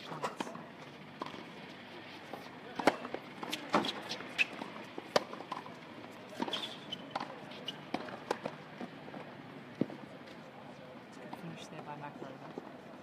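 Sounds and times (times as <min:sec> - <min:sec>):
tennis ball bouncing: 0:01.2 - 0:01.6, 0:02.2 - 0:10.0
tennis racket hitting ball: 0:02.3 - 0:08.6.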